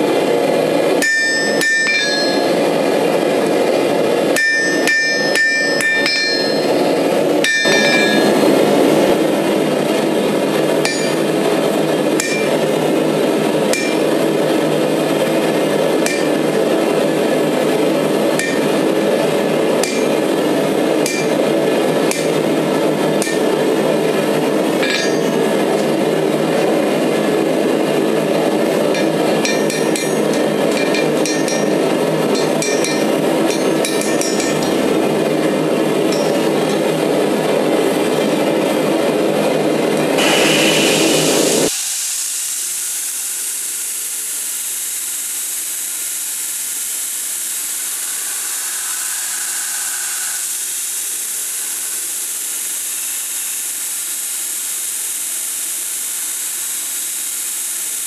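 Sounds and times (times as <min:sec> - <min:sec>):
hammer striking steel on anvil: 0:01.0 - 0:09.4, 0:10.8 - 0:12.7, 0:13.7 - 0:14.3, 0:16.0 - 0:26.0, 0:28.9 - 0:37.1, 0:40.2 - 0:41.7, 0:47.6 - 0:51.0
low rushing noise: 0:34.7 - 0:42.3, 0:47.6 - 0:50.8
belt grinder grinding steel: 0:47.5 - 0:52.0.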